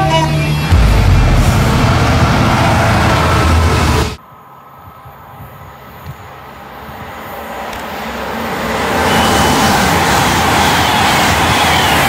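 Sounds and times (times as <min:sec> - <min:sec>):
train rumbling past: 0:00.7 - 0:04.2.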